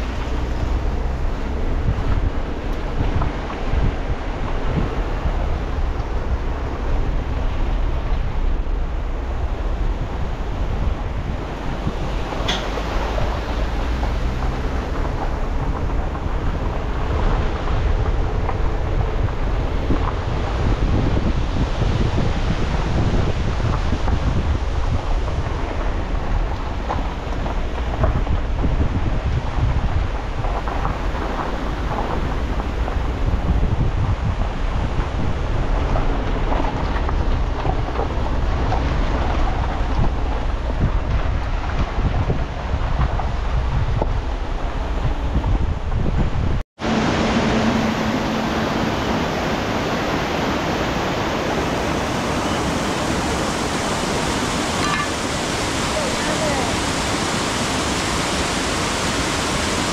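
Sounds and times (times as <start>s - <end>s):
tyres crunching on dirt: 0.0s - 22.1s
car engine and road rumble: 0.0s - 59.9s
tyres crackling on dirt: 0.0s - 59.9s
wind buffeting microphone: 0.0s - 59.9s.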